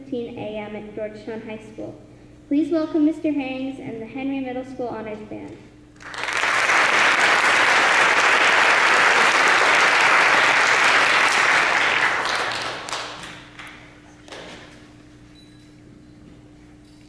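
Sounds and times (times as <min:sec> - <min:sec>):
audience applauding: 0:06.0 - 0:14.0.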